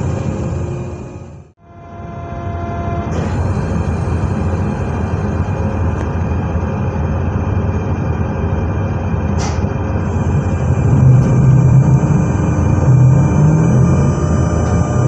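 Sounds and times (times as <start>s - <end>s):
electric train rumbling: 0.0s - 15.0s
brief click: 9.3s - 9.7s.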